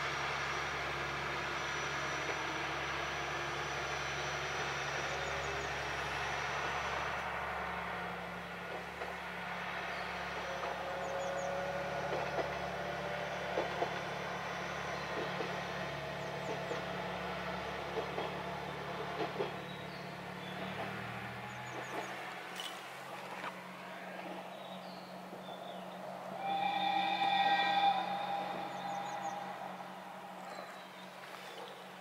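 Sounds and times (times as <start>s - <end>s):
distant diesel railcar engine drone: 0.0s - 32.0s.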